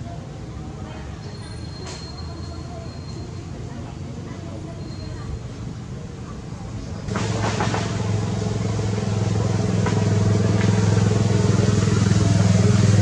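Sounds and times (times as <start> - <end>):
engine humming: 5.4 - 13.0.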